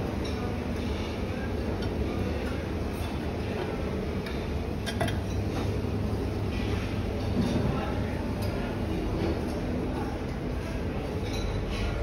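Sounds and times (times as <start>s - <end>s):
dining room hum: 0.0s - 12.0s
dishes and cutlery clinking: 4.2s - 5.7s, 11.1s - 12.0s.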